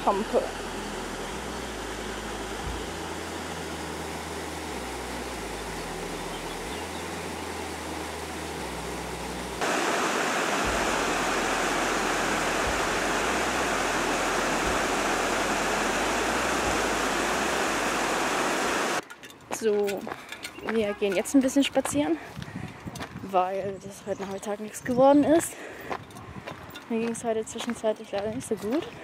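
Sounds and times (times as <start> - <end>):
rushing stream water: 0.0 - 19.0.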